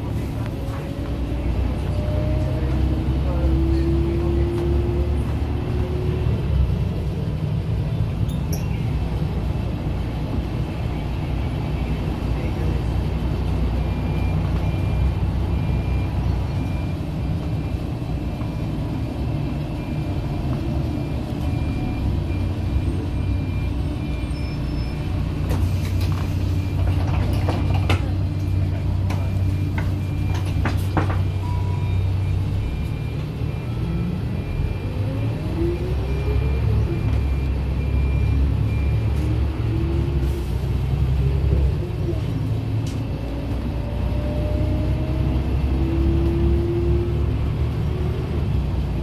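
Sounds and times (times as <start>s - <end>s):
bus engine and road rumble: 0.0s - 49.0s
clicks and knocks from bus body: 29.1s - 31.3s.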